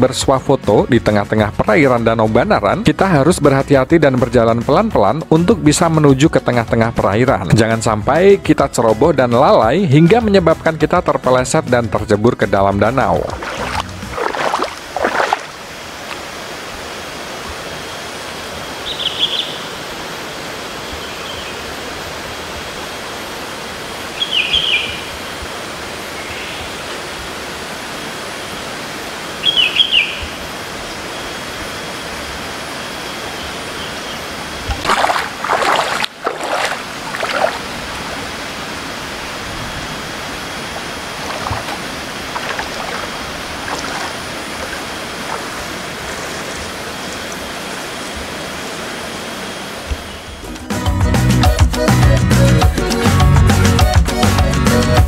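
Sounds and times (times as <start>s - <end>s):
flowing water rushing: 12.9s - 50.5s
bird chirping: 18.8s - 19.7s, 24.2s - 25.2s, 29.4s - 30.4s.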